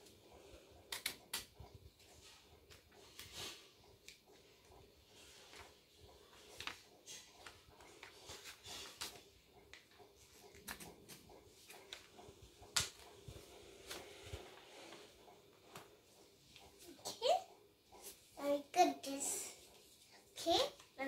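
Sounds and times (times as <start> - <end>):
scissors snipping paper: 10.5 - 12.0.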